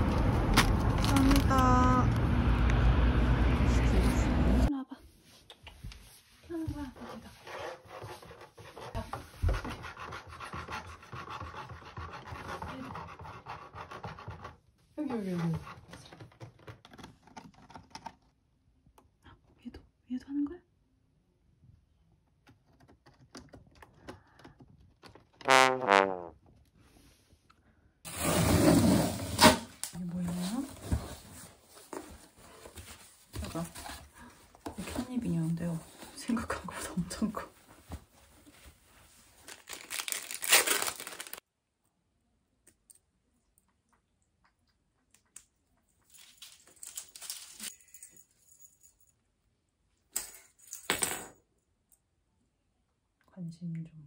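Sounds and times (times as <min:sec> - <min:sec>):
plastic packaging crinkling: 0:00.1 - 0:01.8, 0:39.4 - 0:41.4
comic trombone wah-wah: 0:25.5 - 0:26.3.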